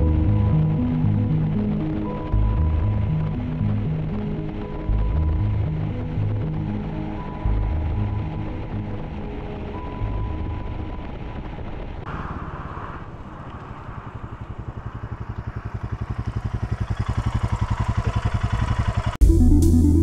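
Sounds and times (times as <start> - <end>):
music: 0.0 - 11.8, 19.2 - 20.0
motorcycle engine running: 10.0 - 19.9.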